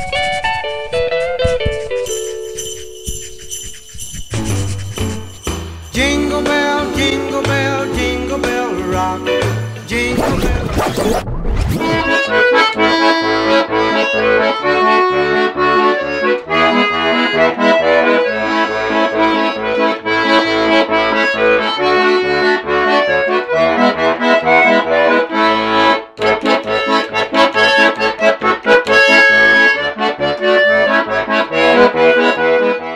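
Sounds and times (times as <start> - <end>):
accordion folk tune: 0.0 - 32.9.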